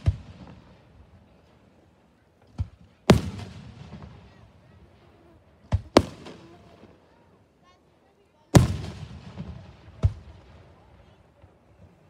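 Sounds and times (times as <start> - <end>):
fireworks bangs with echo: 0.0 - 1.2, 2.6 - 4.6, 5.7 - 6.9, 8.5 - 11.6.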